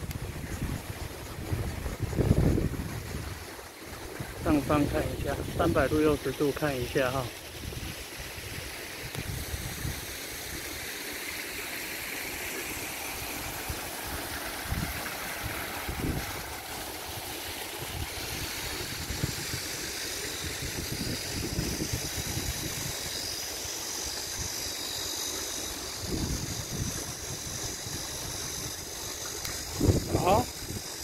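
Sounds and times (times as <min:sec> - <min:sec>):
wind rumble on microphone: 0:00.0 - 0:03.4, 0:07.6 - 0:10.1, 0:14.7 - 0:16.4, 0:17.8 - 0:19.8, 0:20.4 - 0:23.0, 0:26.0 - 0:31.0
steady high hiss: 0:00.0 - 0:31.0.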